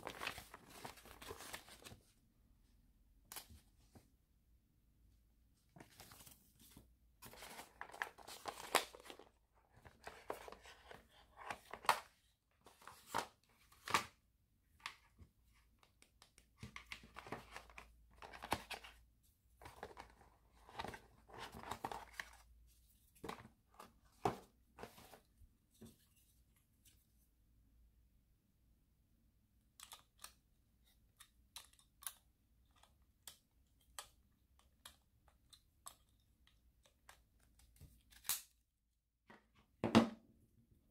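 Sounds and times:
cardboard packaging rustling: 0:00.0 - 0:02.0.

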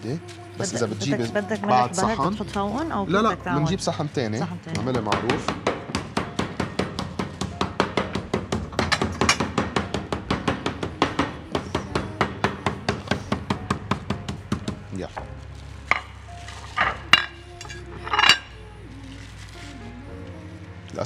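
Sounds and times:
meat mallet pounding: 0:04.8 - 0:15.0
knocks: 0:04.8 - 0:15.2.

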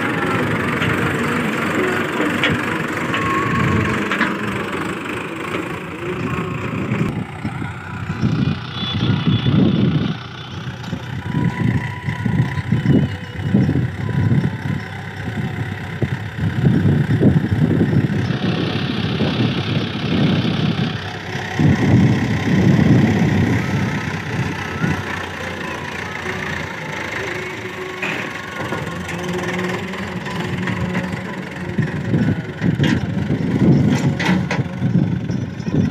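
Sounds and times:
dozer blade pushing soil: 0:00.0 - 0:07.1, 0:18.3 - 0:35.1
tractor diesel engine under load: 0:00.0 - 0:35.9.

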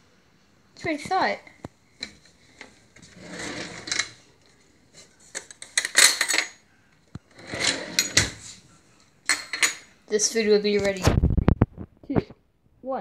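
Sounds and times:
cutlery clinking in a drawer: 0:03.2 - 0:04.2, 0:05.3 - 0:06.6, 0:07.3 - 0:08.5, 0:09.3 - 0:09.9.

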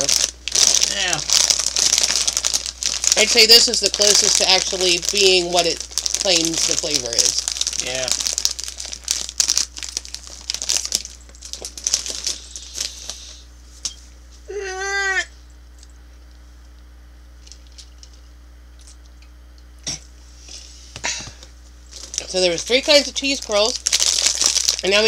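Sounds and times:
snack bag crinkling: 0:00.0 - 0:13.4, 0:21.9 - 0:25.0.

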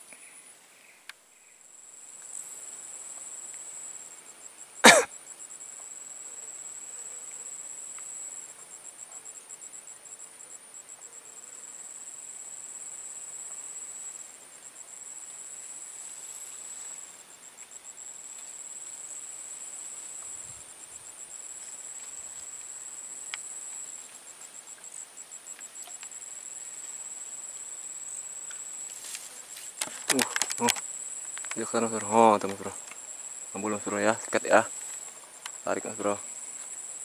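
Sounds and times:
insect call pulsing and buzzing: 0:00.0 - 0:37.0
insects trilling: 0:00.0 - 0:37.0.

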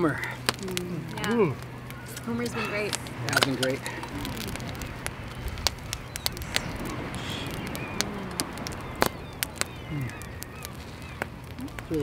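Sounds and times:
campfire crackling: 0:00.0 - 0:12.0
sharp pops and snaps: 0:00.0 - 0:12.0
steady background hiss: 0:00.0 - 0:12.0.

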